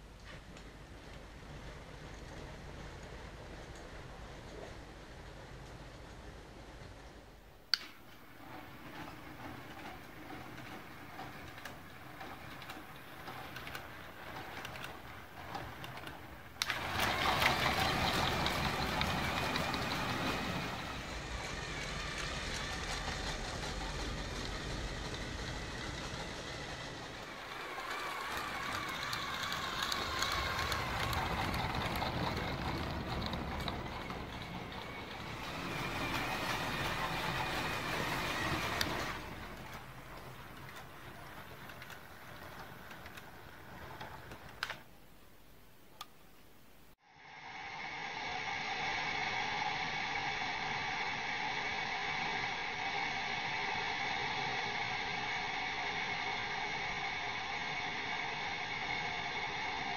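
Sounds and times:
wheels rolling on plastic track: 0.2s - 44.9s
toy train motor whirring: 8.4s - 44.8s.

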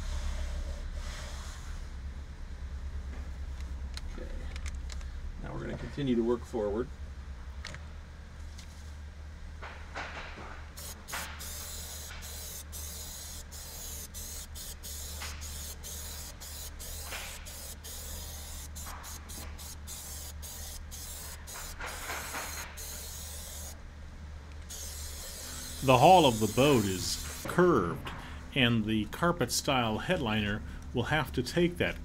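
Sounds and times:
low background hum: 0.0s - 32.0s
aerosol spray hissing: 10.8s - 23.8s, 24.7s - 27.5s.

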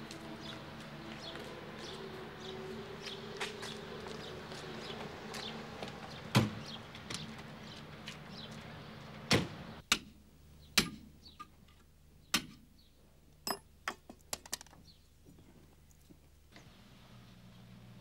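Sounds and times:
car doors thudding shut: 6.3s - 7.3s, 9.3s - 9.6s.

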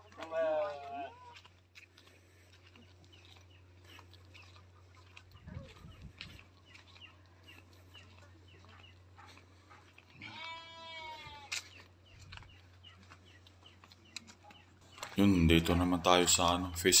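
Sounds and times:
goat bleating: 0.0s - 1.4s, 10.2s - 11.7s.

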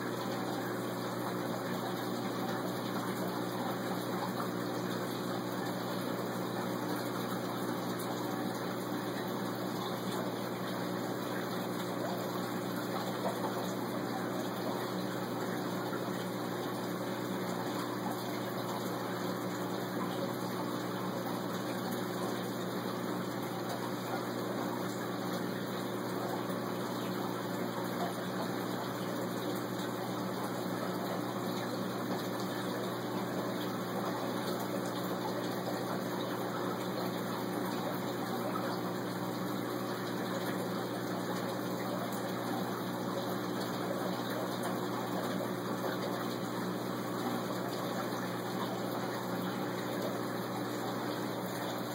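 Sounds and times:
pumps humming: 0.0s - 51.9s.

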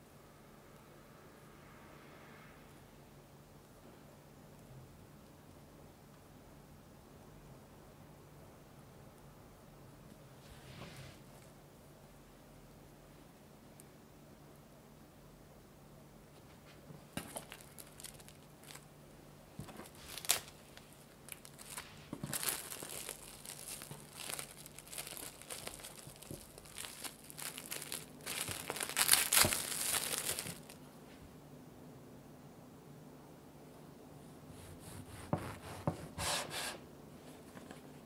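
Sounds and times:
cling film crinkling: 17.2s - 18.9s, 19.6s - 30.8s.

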